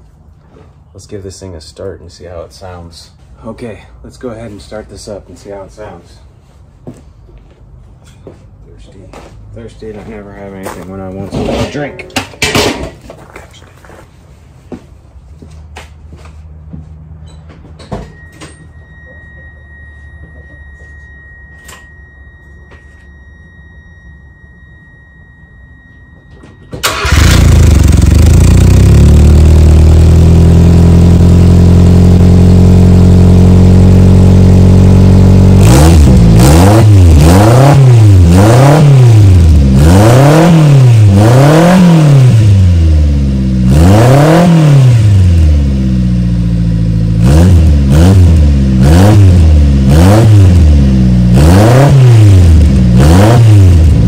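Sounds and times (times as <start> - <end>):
car engine starting and idling: 18.1 - 54.0
car engine revving: 26.8 - 54.0.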